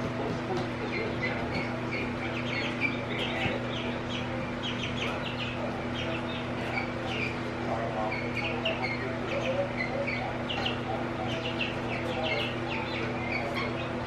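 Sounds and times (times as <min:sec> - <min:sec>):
chicks peeping: 0:00.0 - 0:14.0.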